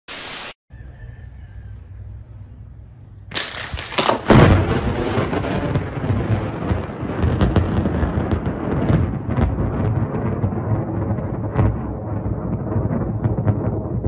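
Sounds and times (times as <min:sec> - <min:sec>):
thunder cracking and rumbling: 0:03.4 - 0:14.0.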